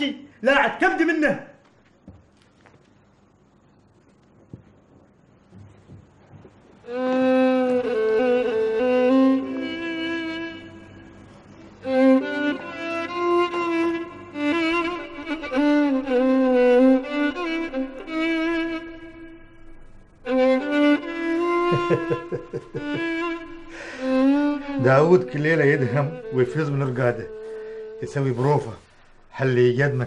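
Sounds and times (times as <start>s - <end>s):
violin playing slow melody: 6.8s - 29.4s.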